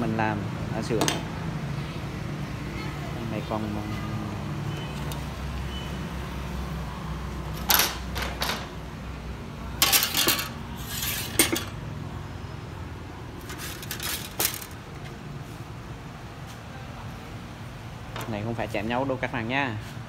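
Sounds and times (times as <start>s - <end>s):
metal blades clinking and rattling: 9.8s - 11.8s, 13.4s - 14.8s.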